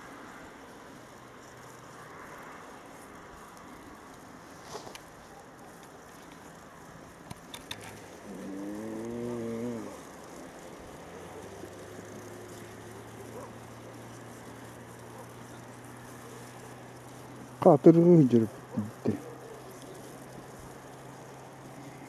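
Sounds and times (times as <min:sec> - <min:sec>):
faint steady hiss: 0:00.0 - 0:22.0
light clicks: 0:04.8 - 0:08.2
cow mooing: 0:08.2 - 0:10.0.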